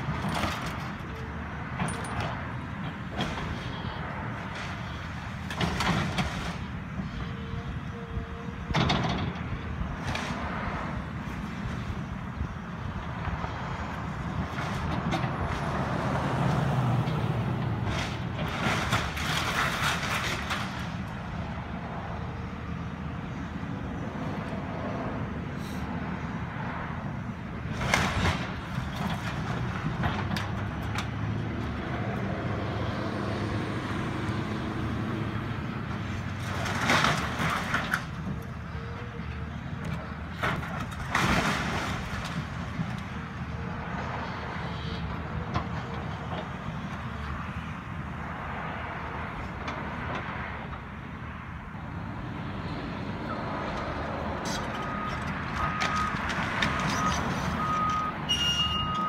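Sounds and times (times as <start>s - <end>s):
excavator diesel engine running: 0.0s - 41.1s, 49.4s - 59.0s
crunching clattering debris: 17.9s - 21.2s, 36.4s - 38.4s, 40.3s - 43.2s
reversing alarm beeping: 56.9s - 59.0s.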